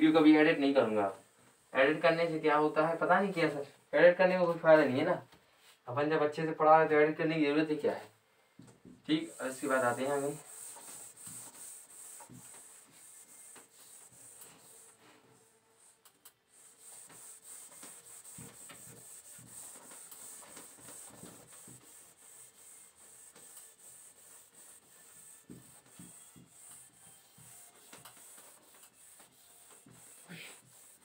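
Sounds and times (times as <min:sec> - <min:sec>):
duster rubbing on whiteboard: 0:09.1 - 0:31.0.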